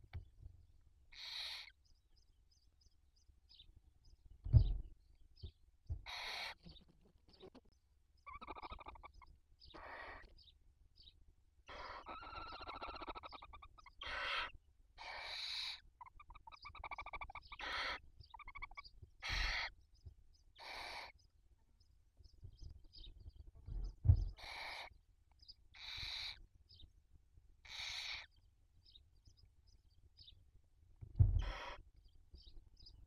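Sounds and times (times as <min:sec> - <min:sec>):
owl chicks hissing screeches: 0:01.1 - 0:01.7, 0:06.1 - 0:06.6, 0:09.8 - 0:10.3, 0:11.7 - 0:15.8, 0:16.4 - 0:18.0, 0:18.6 - 0:19.7, 0:20.6 - 0:21.2, 0:24.4 - 0:24.9, 0:25.8 - 0:26.4, 0:27.7 - 0:28.3, 0:31.4 - 0:31.9
owl chicks rasping chitters: 0:01.1 - 0:01.9, 0:05.9 - 0:10.6, 0:11.6 - 0:21.4, 0:22.2 - 0:26.9, 0:27.6 - 0:28.4, 0:31.4 - 0:33.0.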